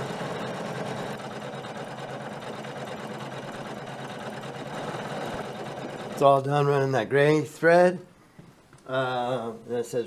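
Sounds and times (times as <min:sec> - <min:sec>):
embroidery machine stitching: 0:00.0 - 0:06.6.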